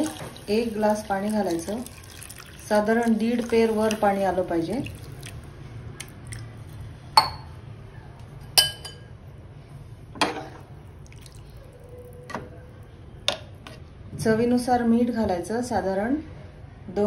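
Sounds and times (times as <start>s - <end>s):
liquid sloshing in a pot: 0.0s - 6.9s
spoon clinking against metal pot: 8.6s - 9.1s.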